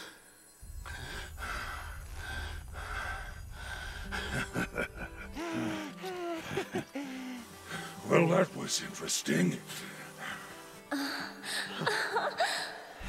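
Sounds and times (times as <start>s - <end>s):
low steady rumble: 0.6s - 5.4s.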